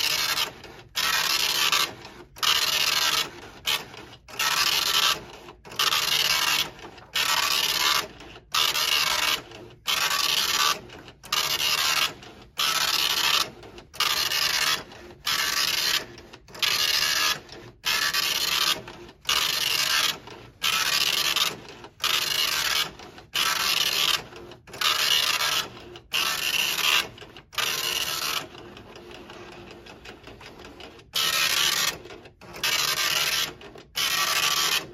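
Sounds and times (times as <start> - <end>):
dot matrix printer printing: 0.0 - 34.9.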